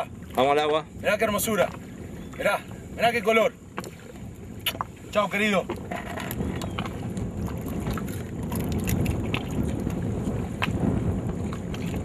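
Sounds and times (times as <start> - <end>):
water lapping against kayak: 0.0 - 12.0
wind rumbling on microphone: 0.0 - 12.0
small ticks and splashes: 5.7 - 10.8.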